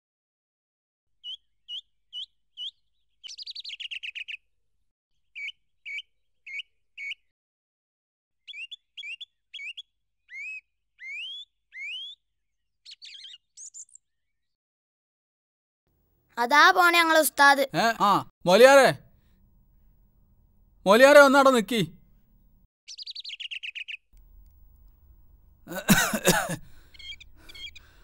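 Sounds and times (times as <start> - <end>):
bird singing whistled notes: 1.2 - 4.4, 5.3 - 7.3, 8.4 - 14.5, 22.9 - 24.1.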